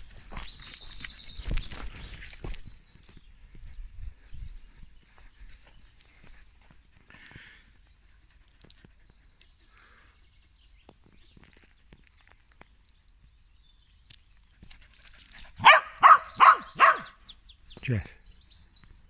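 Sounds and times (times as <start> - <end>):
faint footsteps on gravel: 0.0 - 7.7
dog barking: 15.6 - 17.2.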